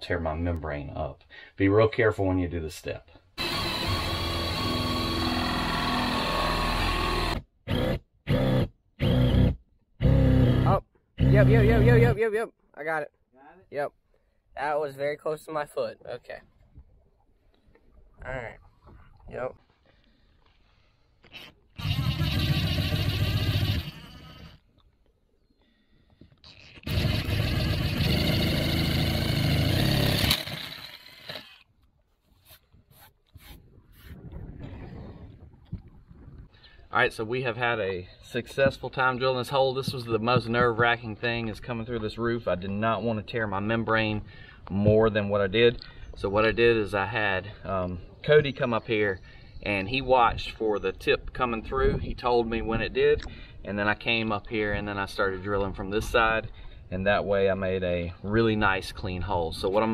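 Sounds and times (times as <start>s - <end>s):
cordless drill boring: 3.4s - 9.3s, 26.8s - 31.6s.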